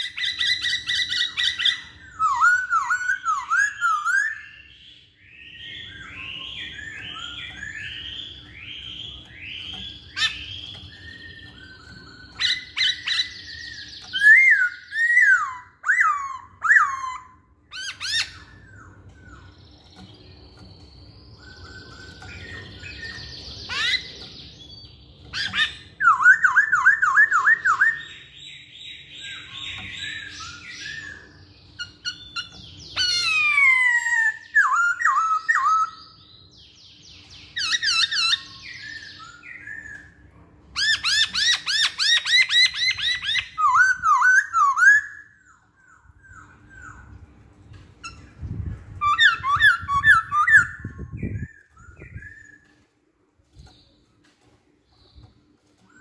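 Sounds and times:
bird singing whistled phrases: 0.0 - 19.5, 25.4 - 36.2, 40.8 - 47.1, 49.0 - 52.7.

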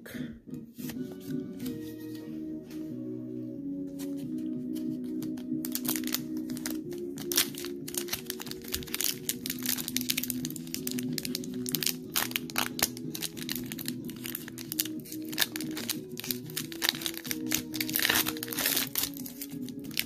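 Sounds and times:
background music of held notes: 0.0 - 20.0
foil wrapper crinkling: 5.2 - 20.0.

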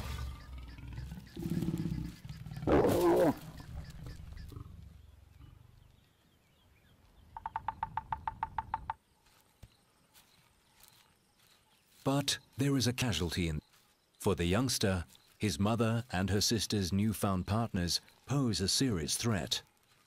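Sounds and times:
lion growling and snarling: 0.0 - 3.6
woodpecker pecking on trunk: 7.4 - 9.0.

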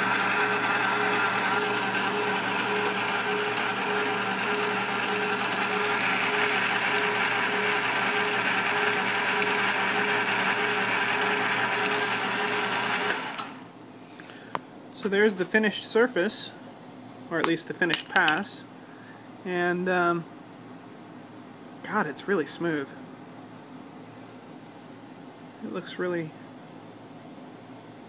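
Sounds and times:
milling machine whirring and cutting: 0.0 - 13.5.

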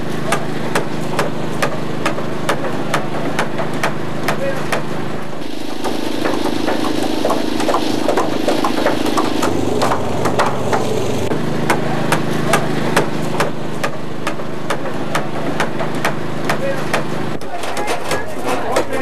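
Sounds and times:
machine engine running: 5.0 - 16.4.

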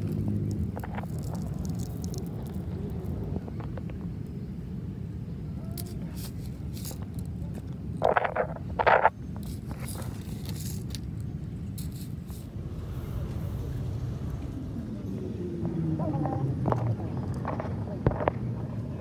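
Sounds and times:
toy cars scraping on gravel: 0.0 - 3.4, 5.8 - 13.6
low rumble: 6.3 - 19.0.

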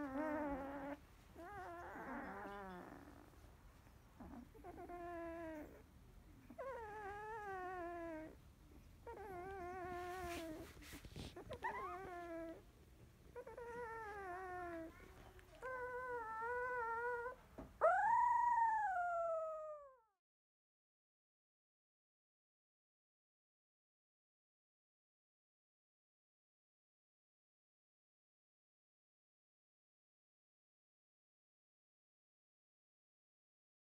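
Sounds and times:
puppy whining: 0.0 - 20.2.

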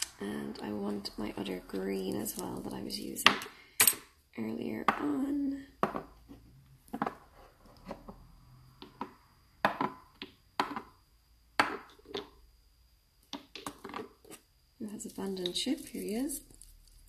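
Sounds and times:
small glass bottles knocking: 8.8 - 11.0.

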